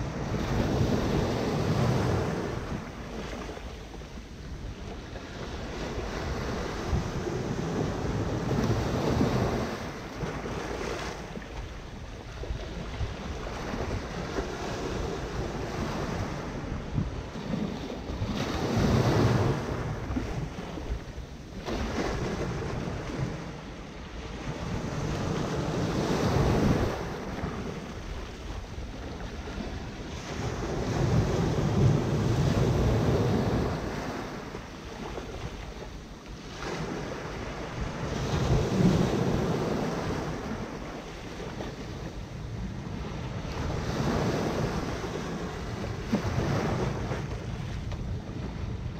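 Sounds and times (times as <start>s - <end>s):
small waves breaking on sand and rocks: 0.0s - 48.9s.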